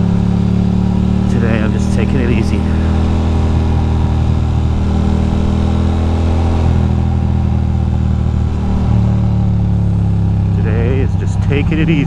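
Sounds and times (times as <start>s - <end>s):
motorcycle engine cruising: 0.0s - 12.0s.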